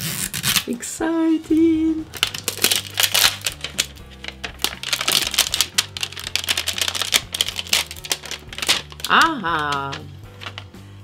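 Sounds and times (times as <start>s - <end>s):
paper wrapping crackling and ripping: 0.0s - 0.7s, 2.1s - 10.8s
background music: 0.0s - 11.0s.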